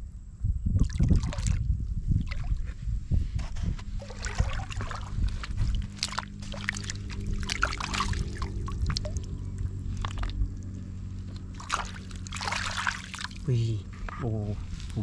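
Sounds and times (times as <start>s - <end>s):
steady low hum: 0.0s - 15.0s
water splashing and trickling: 0.8s - 2.6s, 3.9s - 13.6s.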